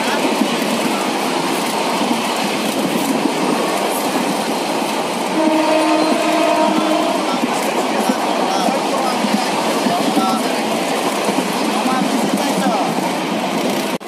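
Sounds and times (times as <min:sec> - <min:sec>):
train wheels on track: 0:00.0 - 0:14.0
train horn: 0:05.3 - 0:07.5.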